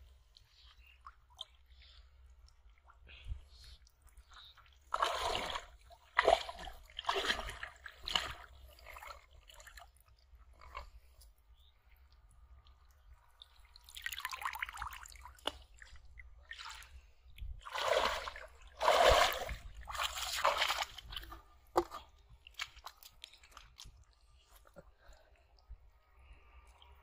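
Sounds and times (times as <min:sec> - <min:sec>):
small clicks and drips: 0:00.0 - 0:05.0, 0:05.8 - 0:17.6, 0:20.7 - 0:27.0
river water splashing: 0:04.9 - 0:09.5, 0:17.6 - 0:21.9.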